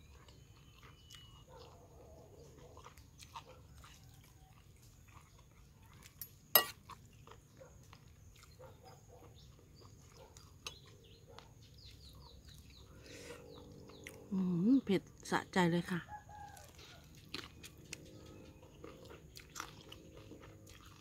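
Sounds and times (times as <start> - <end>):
spoon and fork stirring noodles: 6.1 - 6.8
metal clinking against bowl: 6.2 - 6.8.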